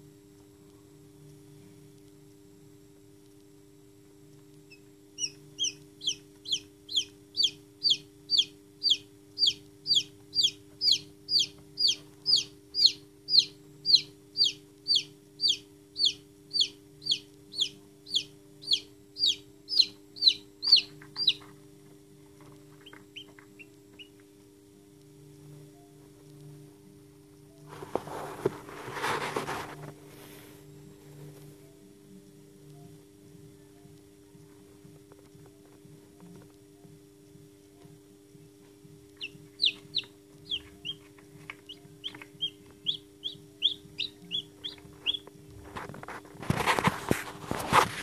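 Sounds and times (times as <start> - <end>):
steady low hum: 0.0 - 48.0
chick peeping: 4.7 - 21.6, 22.4 - 24.2, 39.2 - 47.0.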